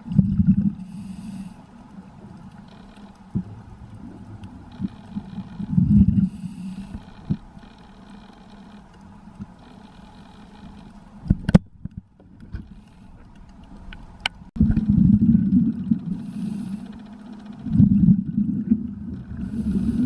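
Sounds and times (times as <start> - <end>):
exhaled bubbles rumbling: 0.0 - 1.0, 1.9 - 6.4, 14.6 - 20.0
steady low hum: 0.0 - 20.0
diver breathing on regulator: 0.6 - 1.7, 4.7 - 8.3, 16.0 - 17.7, 19.3 - 20.0.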